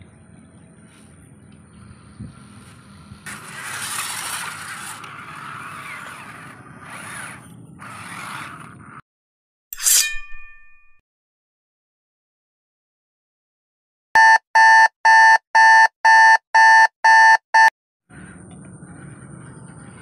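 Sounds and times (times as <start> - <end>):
tyres scraping and grinding: 2.6 - 9.0
toy truck motor whining: 3.3 - 9.0.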